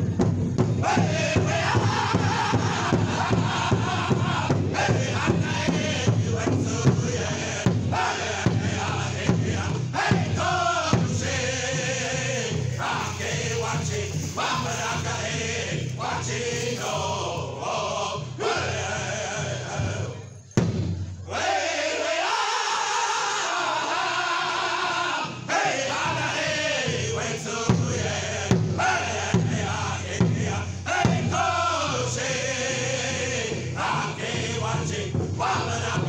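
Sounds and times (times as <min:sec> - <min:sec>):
large drum beating: 0:00.0 - 0:17.6, 0:20.6 - 0:21.1, 0:26.9 - 0:32.2
men singing in high voices: 0:00.8 - 0:20.4, 0:21.3 - 0:36.0.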